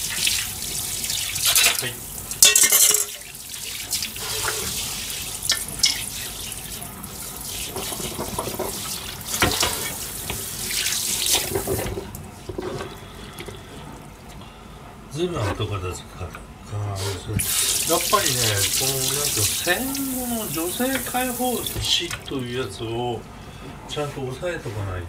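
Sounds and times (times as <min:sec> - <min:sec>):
dishware clinking and knocking: 0:02.4 - 0:03.2.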